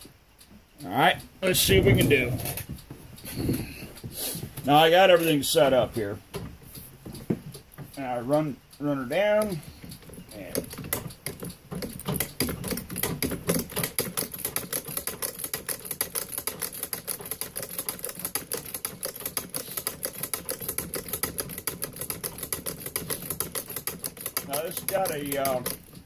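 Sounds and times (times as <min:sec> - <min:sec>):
sewing machine clattering: 0:09.2 - 0:26.0.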